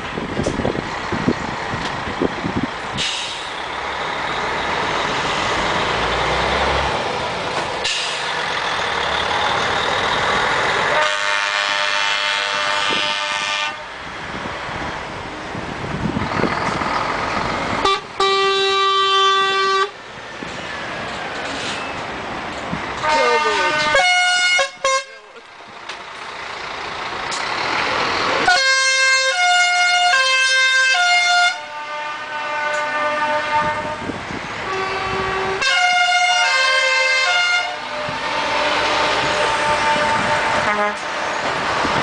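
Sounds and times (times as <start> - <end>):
truck engines passing: 0.0 - 42.0
tyres rushing on road: 0.0 - 42.0
truck air horn: 10.9 - 14.0, 17.8 - 20.0, 23.0 - 25.4, 28.4 - 41.2.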